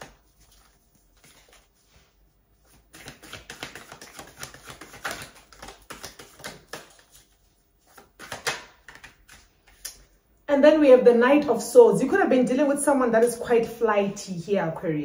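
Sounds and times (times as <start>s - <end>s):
cards being shuffled: 0.0s - 10.1s.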